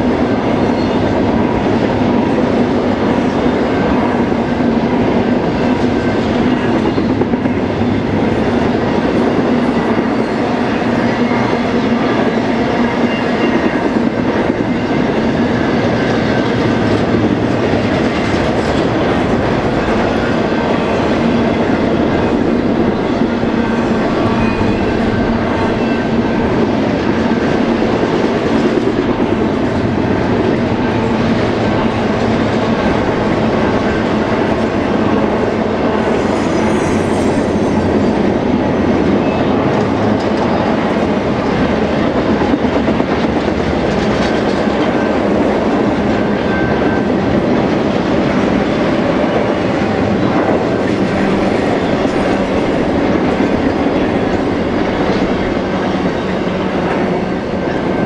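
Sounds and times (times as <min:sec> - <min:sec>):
freight train rumbling past: 0:00.0 - 0:58.0.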